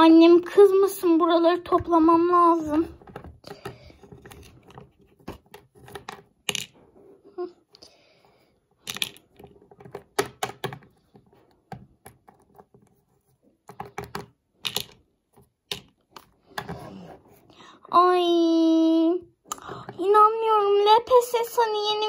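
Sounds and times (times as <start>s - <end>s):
plastic toys tapping on wooden table: 3.0s - 6.7s, 8.8s - 12.8s, 13.7s - 15.0s, 15.7s - 16.8s.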